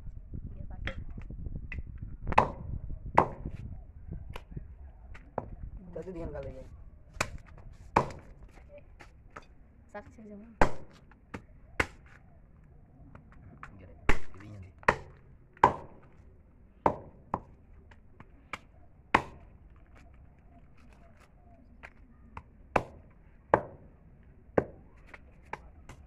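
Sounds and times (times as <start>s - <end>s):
knife chopping meat and bone on wood: 2.3s - 3.5s, 7.2s - 8.4s, 14.1s - 16.1s, 18.5s - 19.5s, 22.7s - 23.8s.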